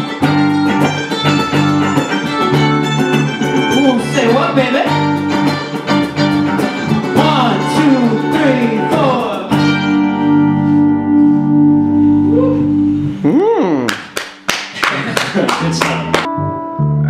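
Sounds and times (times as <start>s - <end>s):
folk-rock band playing: 0.0s - 13.2s.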